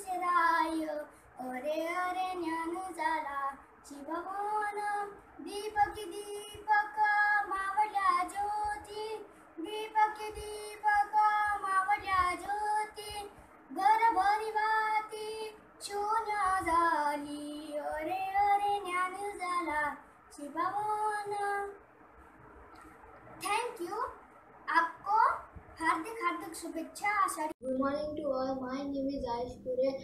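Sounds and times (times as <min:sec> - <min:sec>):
boy singing: 0:00.0 - 0:21.8.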